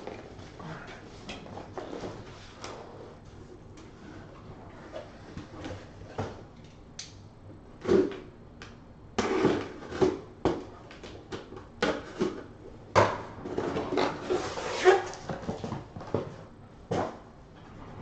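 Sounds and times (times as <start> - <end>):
cardboard boxes knocking and rustling: 15.2 - 17.2.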